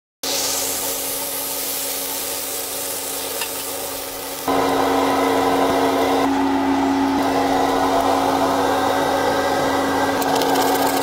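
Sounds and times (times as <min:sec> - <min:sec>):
burger patty sizzling on griddle: 0:00.2 - 0:08.4
machine hum: 0:00.8 - 0:11.0.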